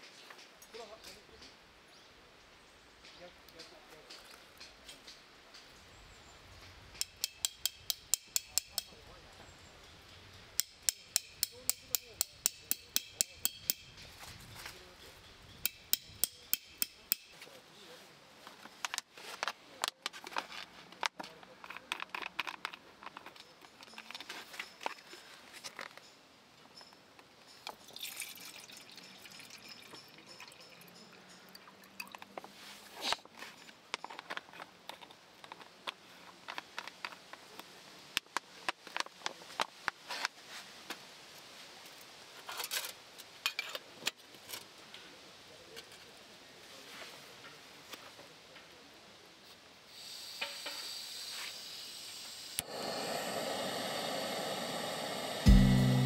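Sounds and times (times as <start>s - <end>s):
metal camping mugs clinking: 7.0s - 9.0s, 9.8s - 17.4s, 21.6s - 32.4s
water pouring: 27.8s - 30.9s.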